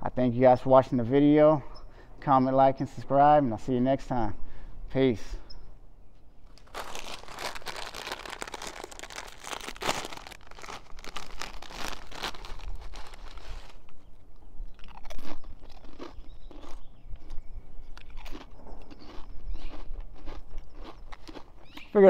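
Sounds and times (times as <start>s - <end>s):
crunching and crackling: 6.4s - 22.0s.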